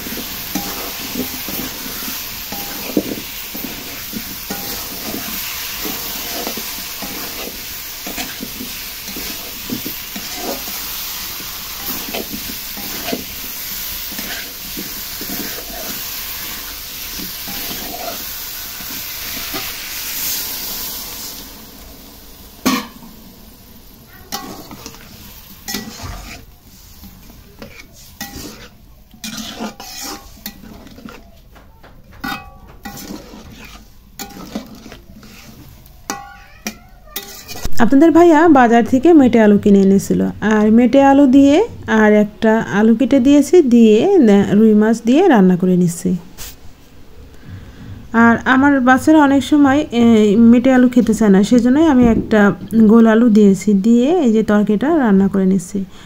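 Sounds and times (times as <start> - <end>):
spatula scraping a pan: 0.0 - 21.3, 24.1 - 31.5, 32.2 - 37.8
food sizzling in oil: 0.0 - 31.5, 32.2 - 47.2, 48.1 - 56.0.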